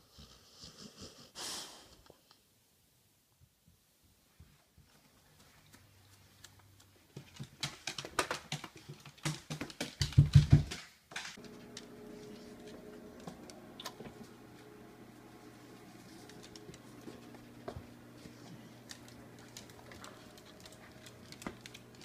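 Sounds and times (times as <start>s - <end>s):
dog claws clicking on wooden floor: 5.7s - 11.8s, 16.2s - 22.0s
steady low hum: 11.4s - 22.0s.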